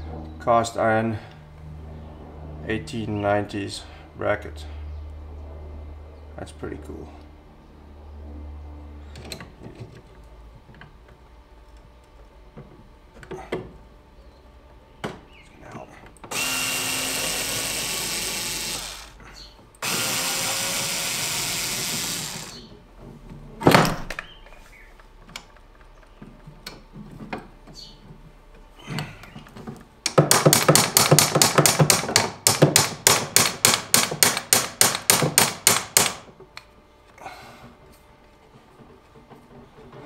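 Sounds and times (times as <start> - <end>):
cordless drill driving screw: 16.3 - 19.2, 19.8 - 22.7.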